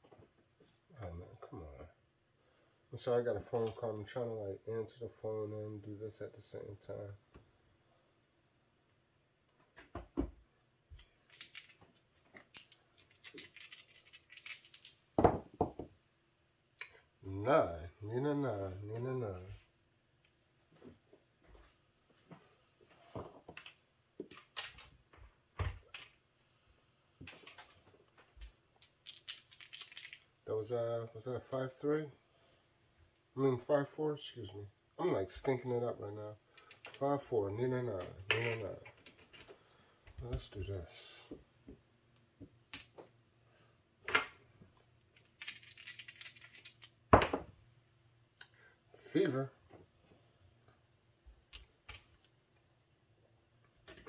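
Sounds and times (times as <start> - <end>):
dice and chips clicking: 11.0 - 11.8, 12.4 - 15.0, 28.8 - 30.3, 36.6 - 37.0, 45.2 - 47.0, 51.5 - 52.2
chips clicking on felt table: 28.8 - 30.2, 45.2 - 47.4.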